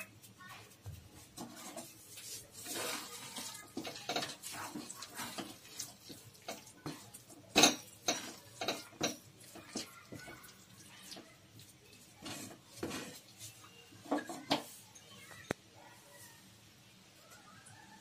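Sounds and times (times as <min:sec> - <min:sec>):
spoon scraping and knocking pan: 0:00.8 - 0:11.2, 0:12.0 - 0:14.8.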